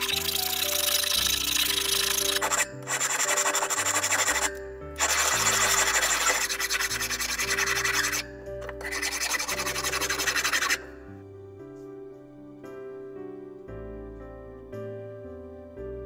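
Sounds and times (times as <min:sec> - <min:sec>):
hand file scraping metal: 0:00.0 - 0:10.9
background music: 0:00.0 - 0:16.0.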